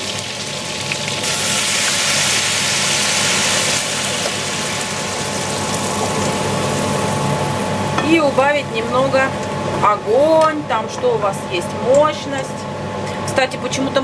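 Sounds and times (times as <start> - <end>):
wine sizzling in a hot pan: 0.0 - 7.9.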